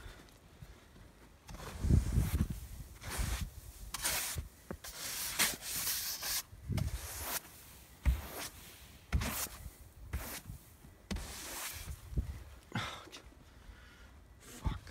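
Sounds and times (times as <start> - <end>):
snow swept off a car: 1.5 - 12.2.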